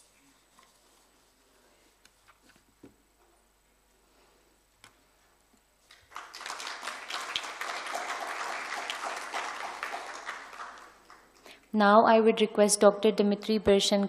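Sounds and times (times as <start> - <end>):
audience applauding: 5.9 - 11.6.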